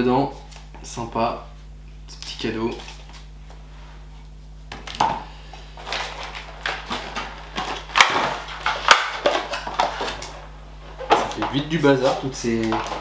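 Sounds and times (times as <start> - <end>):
cardboard packaging rustling: 5.8 - 13.0.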